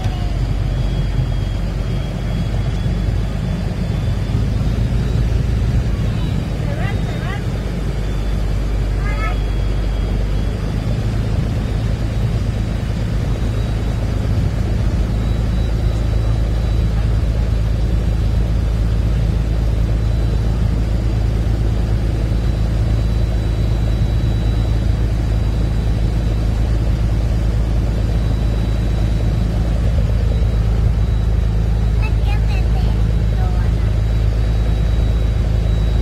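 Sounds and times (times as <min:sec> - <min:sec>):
boat engine rumbling: 0:00.0 - 0:36.0
faint high whine: 0:00.0 - 0:36.0
water noise: 0:00.0 - 0:36.0
wind: 0:00.0 - 0:36.0.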